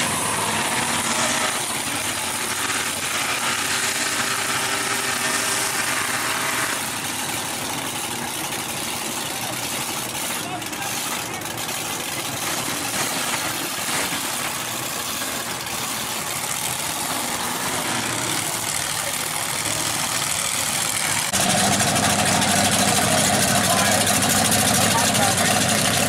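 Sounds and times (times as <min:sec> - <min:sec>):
truck engines idling and running: 0:00.0 - 0:26.0.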